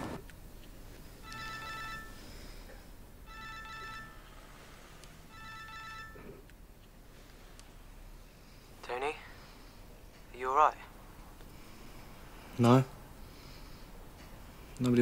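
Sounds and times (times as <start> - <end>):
phone electronic ringtone: 1.2 - 6.5.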